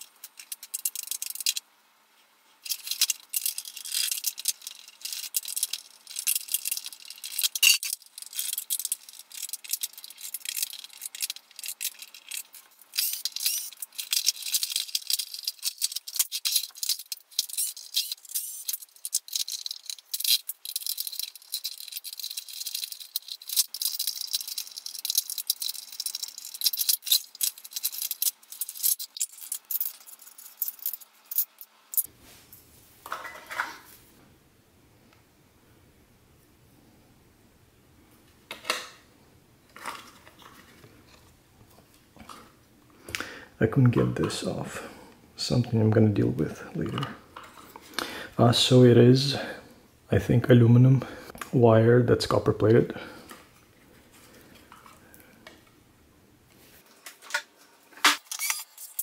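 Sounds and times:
rapid clicking of plastic parts and tools: 0:00.0 - 0:01.6, 0:02.6 - 0:32.1, 0:56.8 - 0:59.0.

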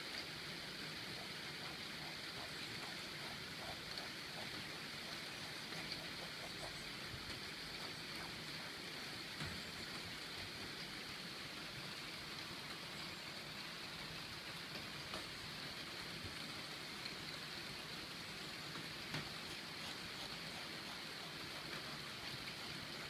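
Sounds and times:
steady hiss: 0:00.0 - 0:23.0
faint ticks: 0:01.2 - 0:10.9, 0:14.7 - 0:15.4.

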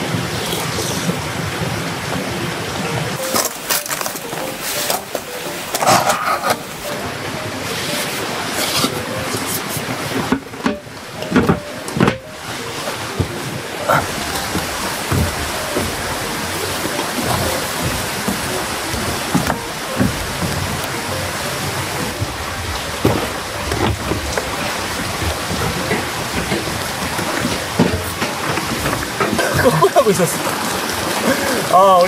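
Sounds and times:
steady rain falling: 0:00.0 - 0:32.0
knocks and thumps: 0:08.8 - 0:30.0.

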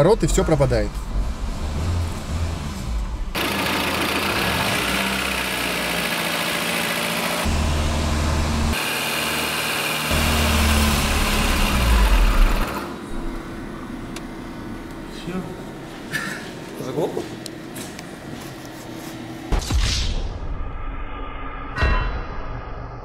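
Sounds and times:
car engine running: 0:00.0 - 0:15.8.

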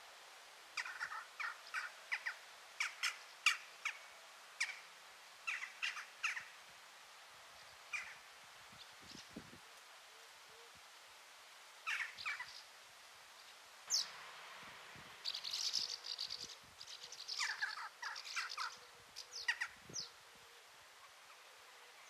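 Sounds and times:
short bird calls: 0:11.8 - 0:12.6, 0:15.2 - 0:20.2
high bird twittering: 0:15.2 - 0:20.1.

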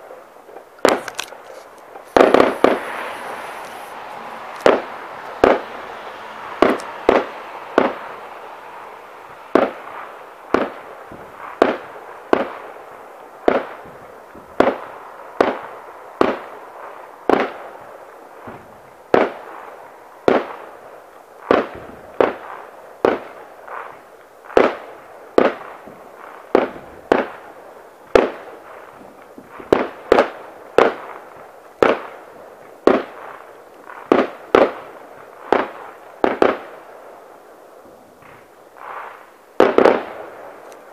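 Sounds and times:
fireworks bangs: 0:00.0 - 0:40.9
steady rushing noise: 0:00.7 - 0:22.8.

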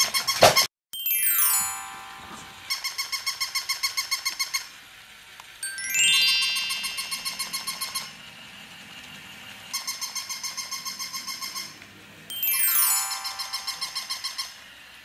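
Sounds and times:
bright bell-like notes: 0:01.0 - 0:03.0, 0:05.6 - 0:08.3, 0:12.3 - 0:14.6
fast falling glissando sweep: 0:01.2 - 0:02.8, 0:05.6 - 0:08.2, 0:12.3 - 0:14.2.

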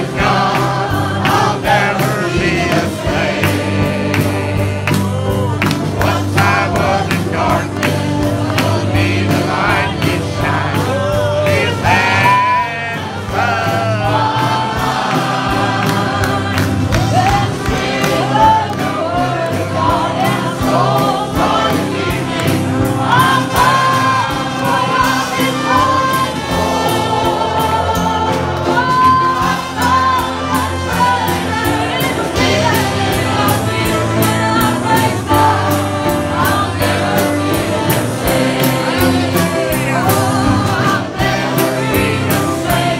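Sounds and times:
congregation singing gospel: 0:00.0 - 0:42.9
instruments playing along: 0:00.0 - 0:42.9.

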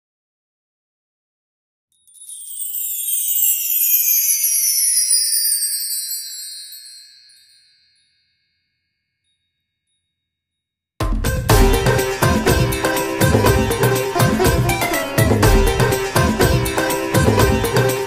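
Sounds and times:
shimmering chime falling in pitch: 0:02.0 - 0:10.0
background music with sitar: 0:11.1 - 0:18.0.

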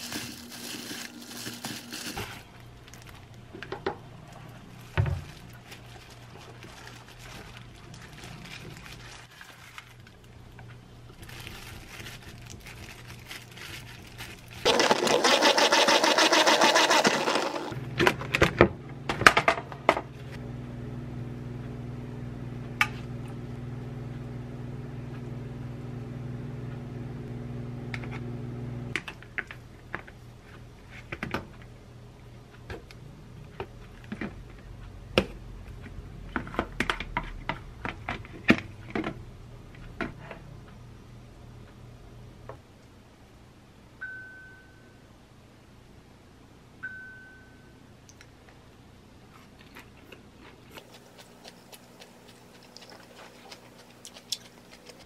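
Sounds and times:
plastic rustling: 0:00.0 - 0:17.8
appliance motor humming: 0:14.2 - 0:18.0.

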